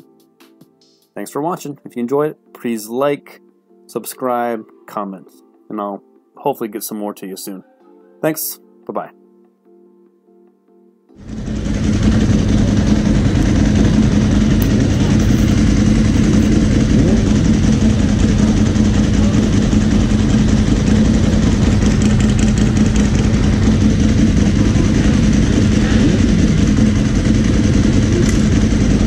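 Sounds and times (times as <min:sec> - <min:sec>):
motorcycle engine idling: 0:11.2 - 0:29.0
other motorcycles idling: 0:11.2 - 0:29.0.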